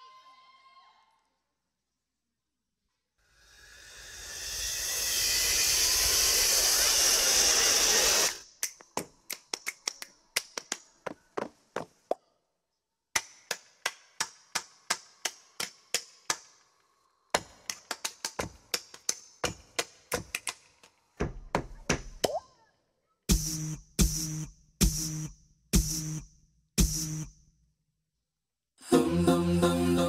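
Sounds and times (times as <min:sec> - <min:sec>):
loud hiss: 0:03.3 - 0:08.4.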